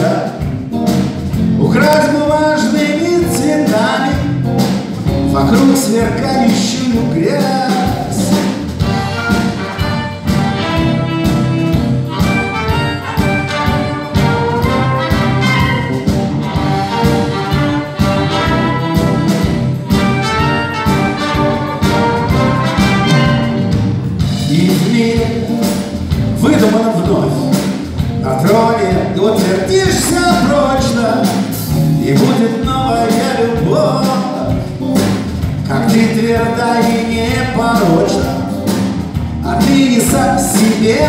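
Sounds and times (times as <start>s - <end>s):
rock band playing: 0.0s - 41.0s
trumpet lead line: 7.5s - 23.9s.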